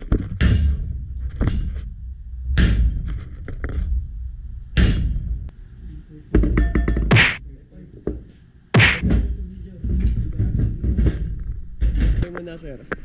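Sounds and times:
hammer striking metal block: 6.6s - 7.4s.

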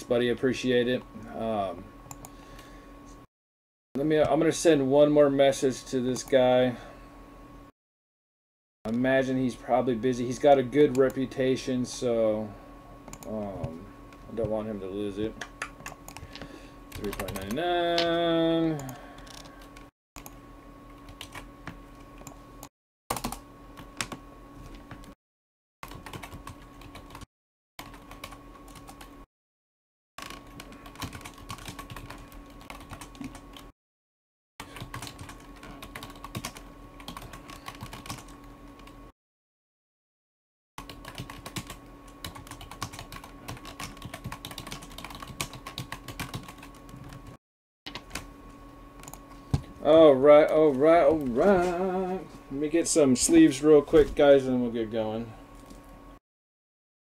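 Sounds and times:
faint steady hum: 0.0s - 3.3s, 4.0s - 7.7s, 8.9s - 22.7s, 47.9s - 56.2s.

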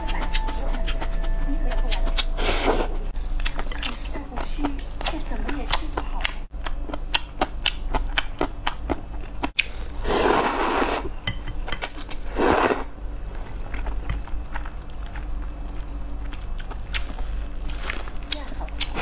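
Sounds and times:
wet chewing clicks: 3.4s - 9.7s, 13.0s - 19.0s
slurping noodles: 9.7s - 11.1s, 12.3s - 12.9s.

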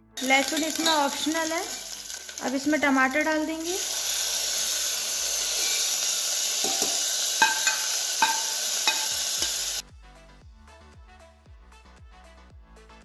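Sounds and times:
quiet background music: 0.0s - 5.6s
tomato sizzling in hot fat: 0.0s - 9.8s.

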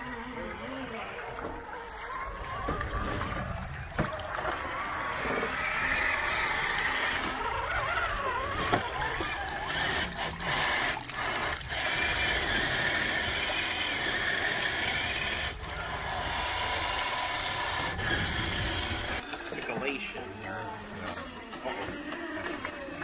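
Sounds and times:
high whine of electric motors: 4.6s - 23.0s.

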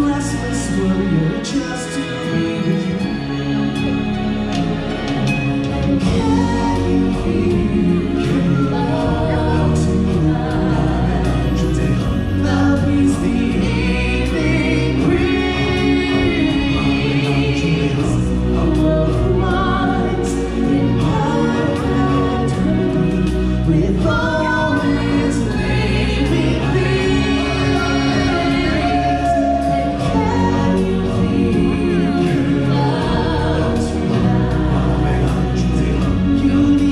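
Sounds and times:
band accompaniment: 0.0s - 36.9s
choir singing: 0.0s - 36.9s
deep bass: 0.0s - 36.9s.

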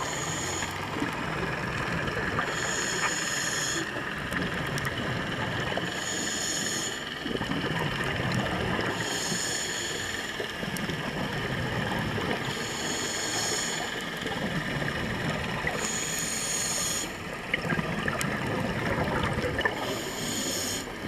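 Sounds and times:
scuba regulator hissing inhalation: 0.0s - 0.8s, 2.4s - 3.9s, 5.8s - 7.1s, 9.0s - 10.4s, 12.5s - 14.0s, 15.8s - 17.2s, 19.8s - 21.0s
steady underwater hum: 0.0s - 21.0s.

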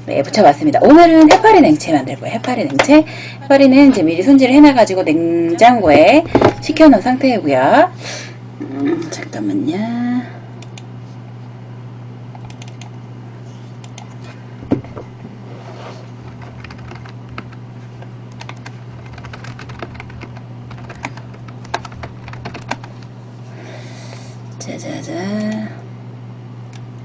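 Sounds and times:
low electrical hum: 0.0s - 27.0s
computer keyboard typing: 12.4s - 12.9s, 16.3s - 17.6s, 18.3s - 23.0s.

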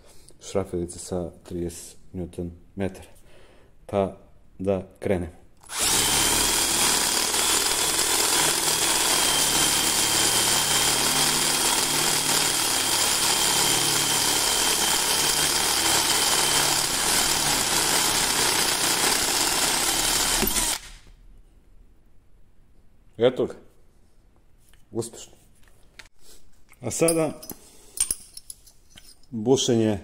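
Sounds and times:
cordless drill boring through steel: 5.6s - 21.0s.

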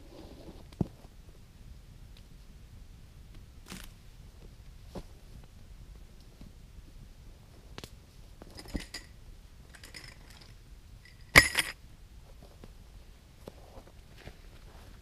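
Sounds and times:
small metal items clinking: 8.5s - 11.8s.

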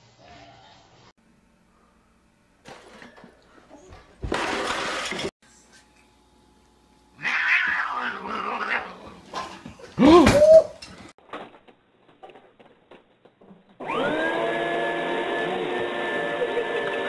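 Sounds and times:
animal yelping cry: 7.2s - 9.0s.

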